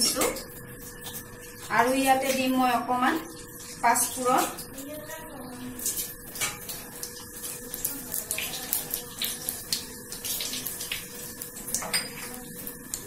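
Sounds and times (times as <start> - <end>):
seeds sizzling in oil: 0.4 - 13.0.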